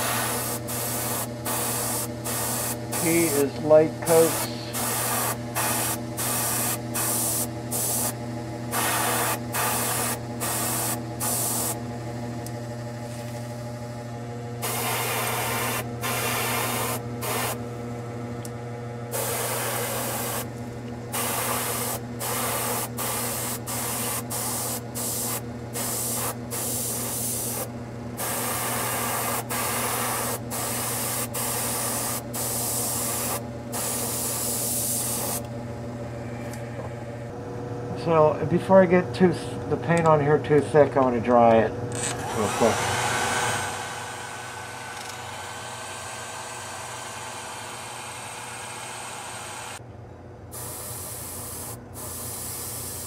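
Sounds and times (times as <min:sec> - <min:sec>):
airbrush spraying hiss: 0:00.0 - 0:11.8, 0:14.6 - 0:17.6, 0:19.1 - 0:20.5, 0:21.1 - 0:35.4, 0:50.6 - 0:53.0
low hum: 0:41.7 - 0:48.5.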